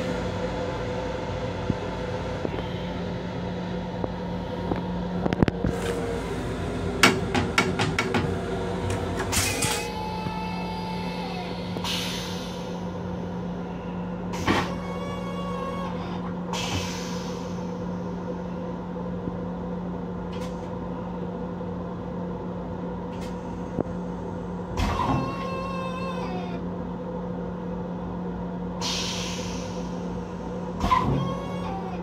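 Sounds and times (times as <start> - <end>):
steady low hum: 0.0 - 32.0
short hisses: 28.8 - 30.0.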